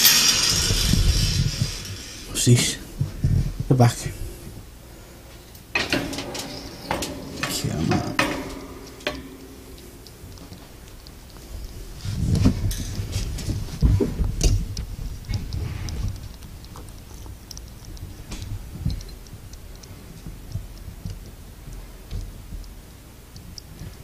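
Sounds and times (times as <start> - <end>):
wire cage clicks and rattles: 5.4 - 24.0.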